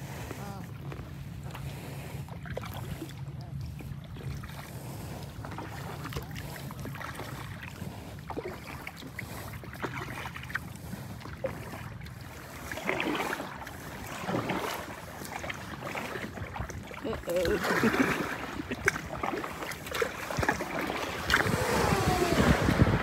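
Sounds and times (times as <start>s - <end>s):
kayak paddle splashing: 0.0s - 23.0s
water lapping at hull: 0.0s - 23.0s.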